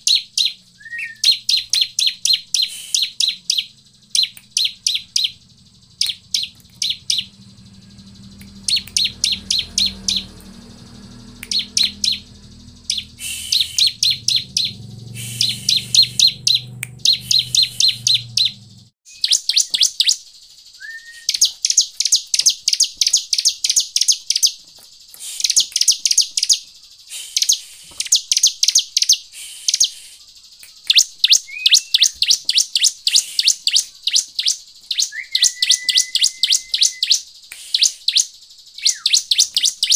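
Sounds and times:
bird chip notes: 0.0 - 20.2.

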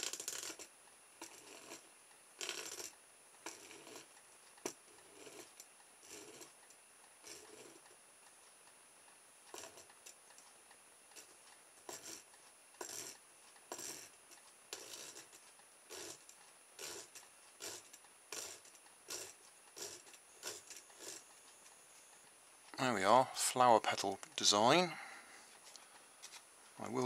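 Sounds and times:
metal points scratching plastic: 14.8 - 21.3.

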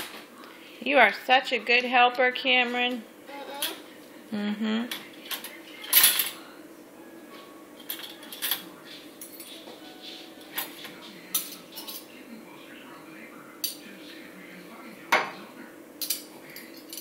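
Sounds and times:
metal cutlery clinking: 5.3 - 6.4, 7.8 - 9.6, 10.4 - 12.2, 16.0 - 17.0.

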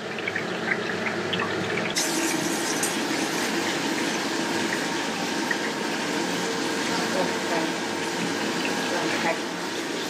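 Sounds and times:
fruit hissing in a pan: 2.0 - 10.0.

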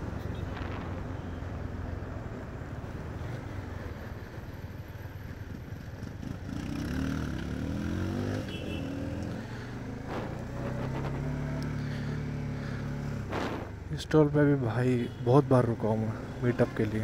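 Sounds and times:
motorcycle engine revving: 5.9 - 13.9.

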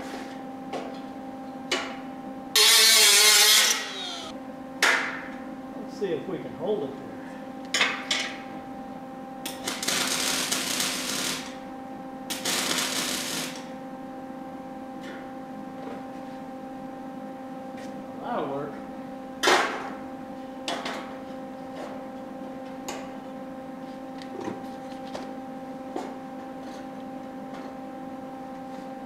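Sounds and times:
electrical hum: 0.0 - 29.0
welder welding: 2.6 - 4.3, 9.5 - 11.6, 12.3 - 13.7.

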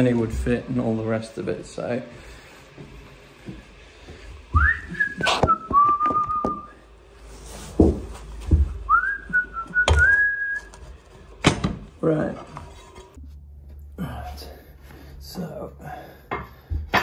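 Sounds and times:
man whistling: 4.6 - 6.8, 8.9 - 10.7.

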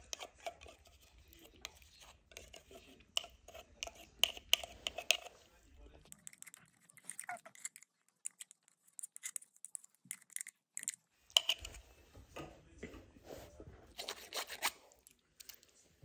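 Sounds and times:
metal spoon scraping plastic cup: 0.0 - 5.5, 6.1 - 11.8, 13.9 - 14.9.

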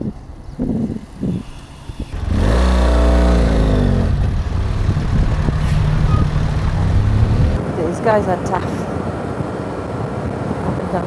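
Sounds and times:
vehicle engine running: 0.2 - 7.6.

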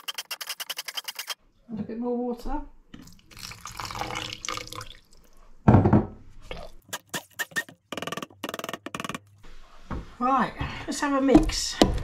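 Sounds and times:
water pouring from a jug: 3.0 - 5.4.

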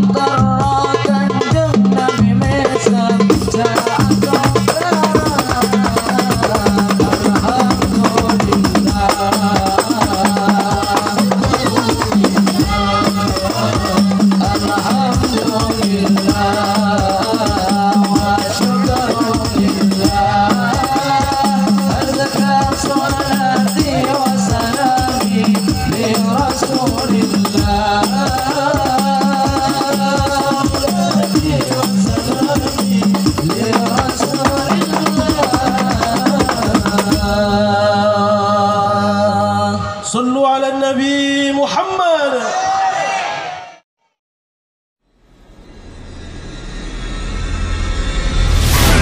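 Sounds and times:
hand drums fast rhythm: 0.0 - 37.7
jingling hand percussion: 0.0 - 37.7.

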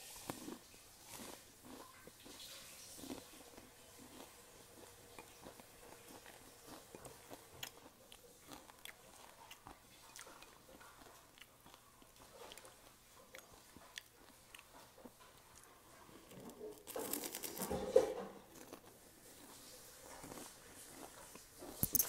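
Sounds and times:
crunching bite and chewing: 0.0 - 15.7, 16.3 - 22.0.

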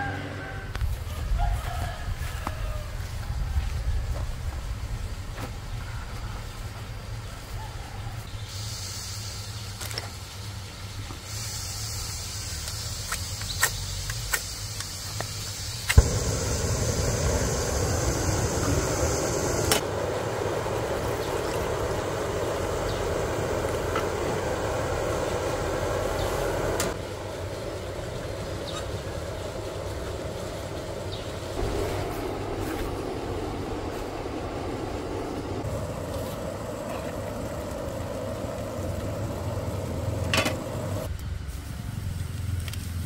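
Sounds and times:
gas hissing: 8.4 - 9.7, 11.2 - 41.6
burner rushing flame: 15.6 - 41.2
low rumble: 16.0 - 42.4.

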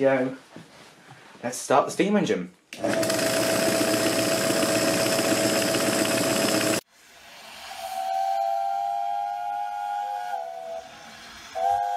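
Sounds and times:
model steam engine running fast: 2.9 - 6.8
steam whistle chord: 7.1 - 11.9.

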